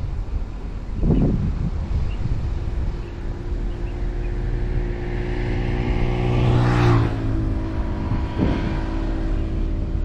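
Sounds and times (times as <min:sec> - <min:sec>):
car engine hum: 0:00.0 - 0:10.0
tyre and road noise: 0:00.0 - 0:10.0
loud rushing noise: 0:04.1 - 0:10.0.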